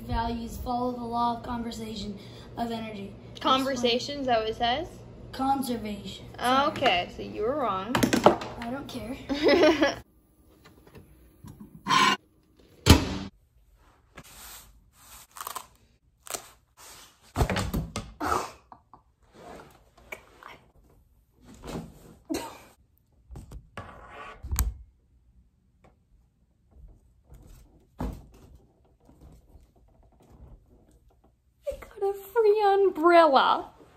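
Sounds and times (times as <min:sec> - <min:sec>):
loud sharp thunk: 0:12.9 - 0:13.3.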